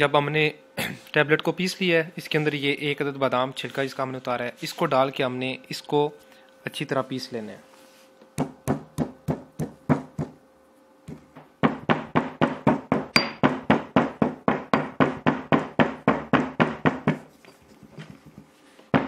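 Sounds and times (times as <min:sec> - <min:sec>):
pestle pounding in a mortar: 0:08.4 - 0:10.4, 0:11.1 - 0:17.3.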